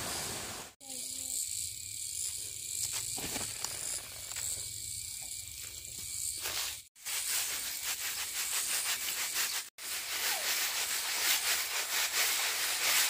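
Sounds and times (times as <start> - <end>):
insects chirring: 0.0 - 6.9.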